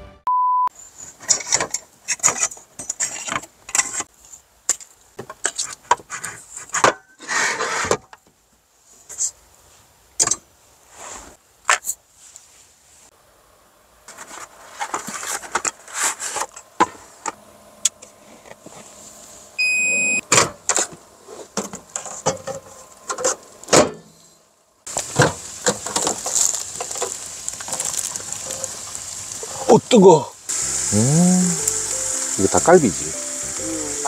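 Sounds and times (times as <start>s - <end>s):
microwave beep: 0.3s - 0.7s, 19.6s - 20.2s
hot food sizzling: 24.8s - 34.0s.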